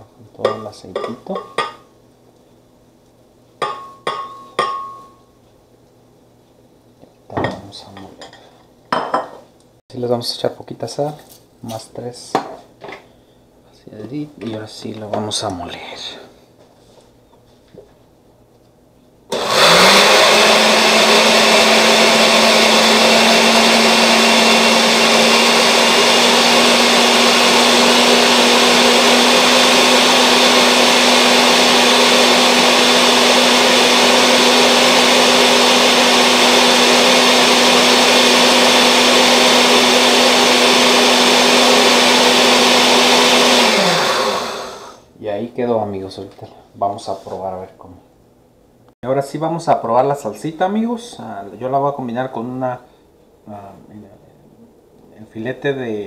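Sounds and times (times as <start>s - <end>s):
blender motor whine and churning: 19.3s - 45.0s.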